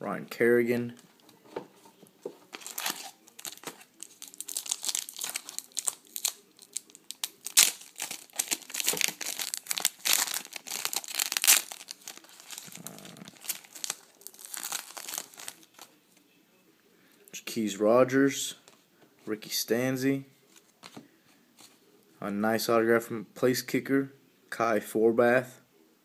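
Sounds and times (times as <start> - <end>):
plastic wrapper crinkling and tearing: 2.5 - 15.9.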